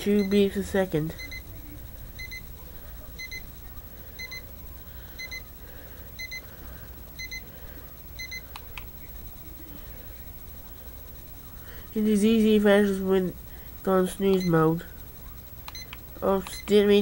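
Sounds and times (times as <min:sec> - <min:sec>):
alarm clock beeping: 0:00.0 - 0:17.0
sharp clicks: 0:08.4 - 0:09.0, 0:15.6 - 0:16.8.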